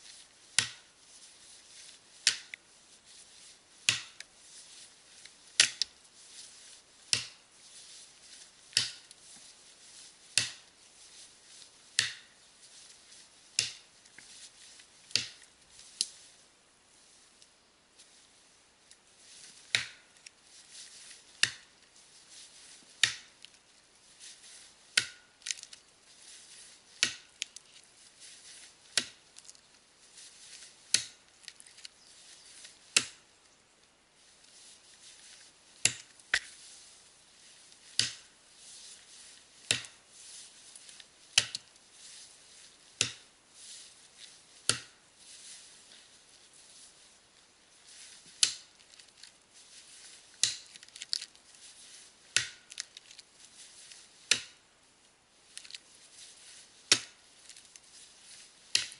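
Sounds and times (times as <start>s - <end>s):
axe chopping into tree trunk: 0.6s - 0.9s, 3.9s - 4.2s, 10.4s - 10.6s, 12.0s - 12.3s, 25.0s - 25.2s, 33.0s - 33.2s, 38.0s - 38.3s, 43.0s - 43.2s, 44.7s - 45.0s, 52.4s - 52.6s.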